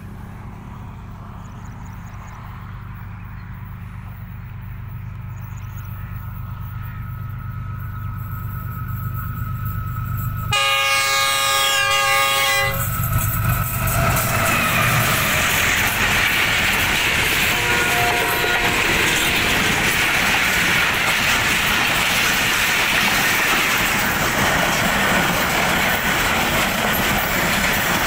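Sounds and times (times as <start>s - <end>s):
locomotive engine drone: 0.0s - 28.0s
train rushing past: 0.0s - 28.0s
locomotive horn blast: 10.5s - 13.0s, 17.3s - 19.4s.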